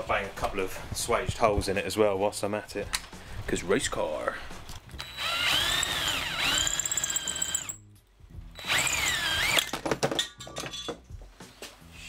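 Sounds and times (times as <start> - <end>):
cordless drill boring through metal: 5.0 - 7.8, 8.6 - 9.7.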